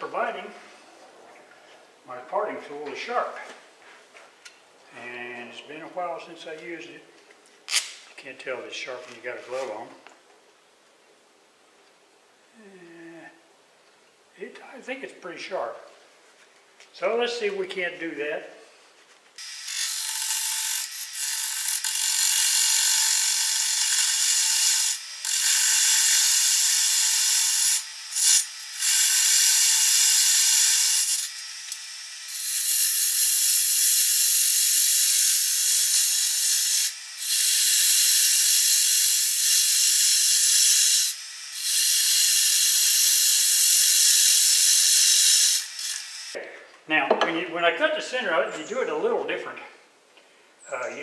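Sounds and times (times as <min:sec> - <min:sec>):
lathe tool scraping wood: 0:19.4 - 0:31.4.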